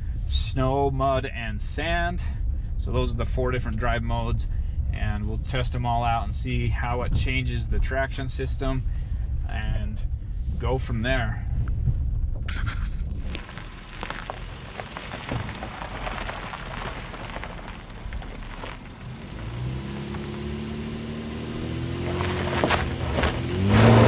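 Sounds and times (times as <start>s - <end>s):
truck engine under load: 11.7s - 24.0s.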